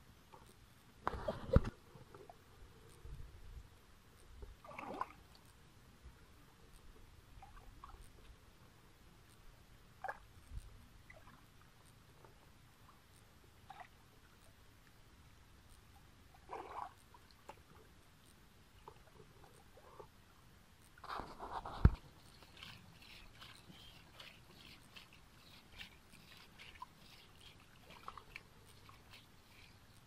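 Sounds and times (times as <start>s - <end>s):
small wet clicks: 4.2s - 5.6s, 6.4s - 8.4s, 15.6s - 30.0s
sloshing in muddy water: 4.6s - 5.2s, 16.4s - 17.0s, 21.6s - 29.9s.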